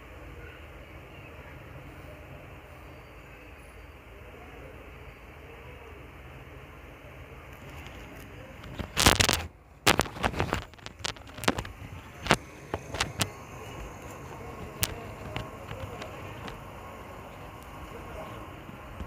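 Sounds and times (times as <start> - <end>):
low hiss: 0.0 - 19.0
sharp clicks and crackles: 7.5 - 16.7
rustling: 7.6 - 16.7.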